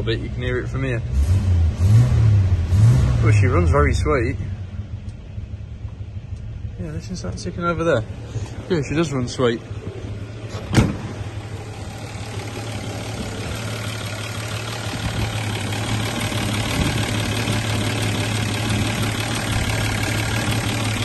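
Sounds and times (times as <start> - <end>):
exhaust chuffing: 0.0 - 21.0
car engine idling: 3.3 - 21.0
car door shutting: 10.5 - 11.3.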